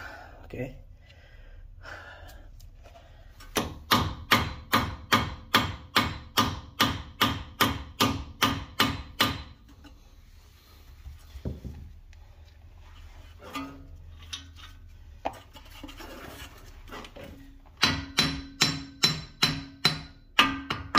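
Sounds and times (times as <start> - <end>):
hammer striking metal axle: 3.5 - 10.0, 17.6 - 20.9.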